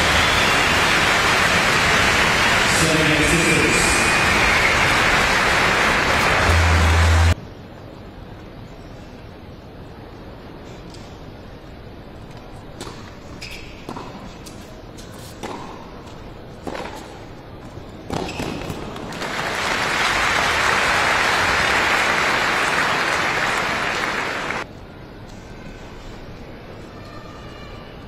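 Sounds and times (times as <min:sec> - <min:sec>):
crowd applause: 0:00.0 - 0:07.4, 0:19.1 - 0:24.6.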